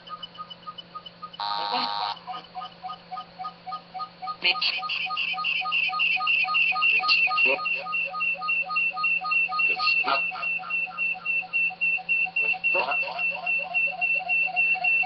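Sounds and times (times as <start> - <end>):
rhythmic electronic beeping: 0.0 - 15.0.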